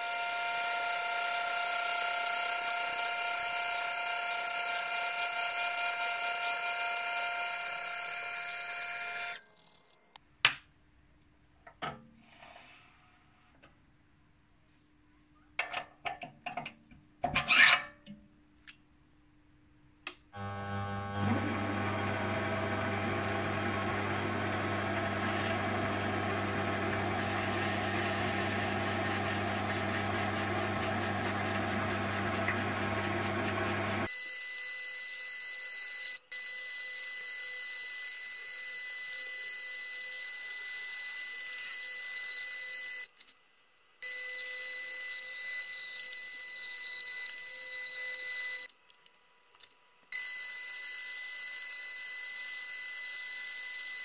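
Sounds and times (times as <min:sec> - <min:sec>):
lathe cutting brass: 0:00.0 - 0:09.8, 0:20.4 - 0:34.1.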